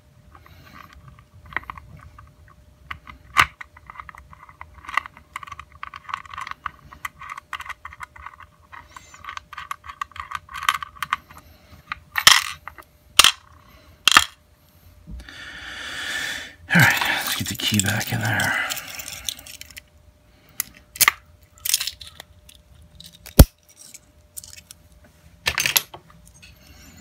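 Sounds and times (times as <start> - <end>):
metal lock parts clicking: 17.3 - 19.8, 20.6 - 24.8.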